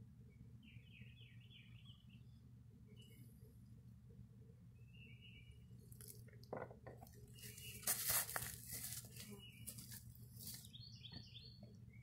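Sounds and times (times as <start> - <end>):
footsteps through dry pine straw: 7.4 - 10.8
rustling of person getting up: 7.5 - 10.6.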